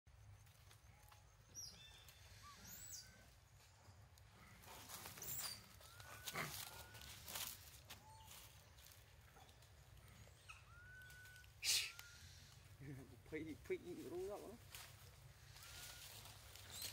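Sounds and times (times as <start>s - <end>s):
high whistling calls: 10.3s - 12.6s.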